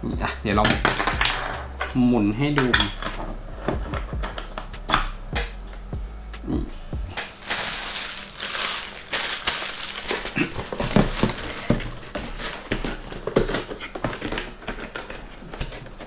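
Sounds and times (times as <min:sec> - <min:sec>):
plastic bag crinkling: 0:07.1 - 0:16.0.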